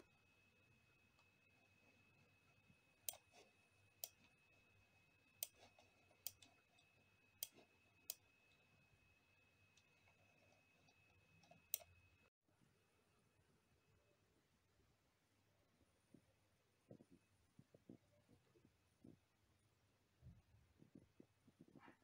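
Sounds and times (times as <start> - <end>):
faint high-pitched whine: 0.0 - 21.9
computer mouse buttons clicking: 3.0 - 3.4, 5.4 - 8.2, 10.9 - 12.0.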